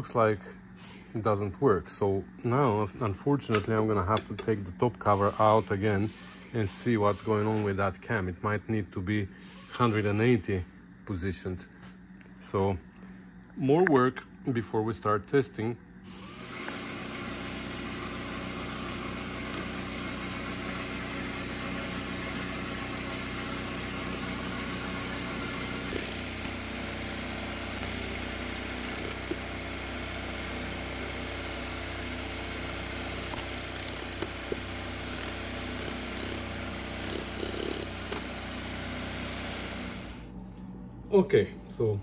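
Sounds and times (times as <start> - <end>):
electric motor spinning gearbox: 16.4 - 40.3.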